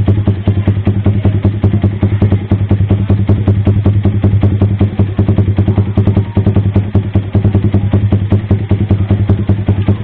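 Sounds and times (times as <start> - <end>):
motorcycle engine idling: 0.0 - 10.0.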